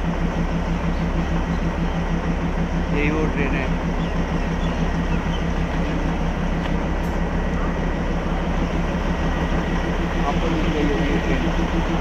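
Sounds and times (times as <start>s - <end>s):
diesel locomotive idling: 0.0s - 12.0s.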